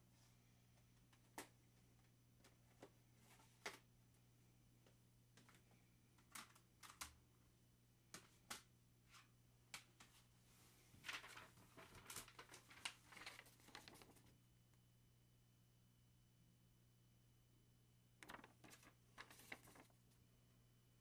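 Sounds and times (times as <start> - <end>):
paper rustling: 10.9 - 14.3, 18.2 - 20.2.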